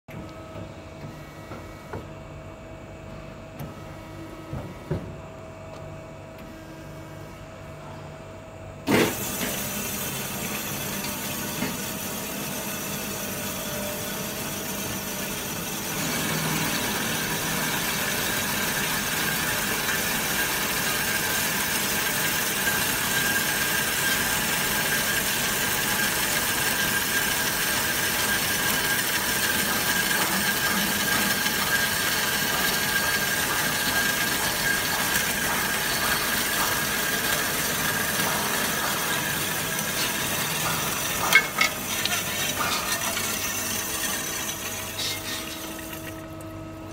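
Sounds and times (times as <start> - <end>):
band saw cutting steel bar: 9.0 - 46.2
coolant flowing: 9.0 - 46.9.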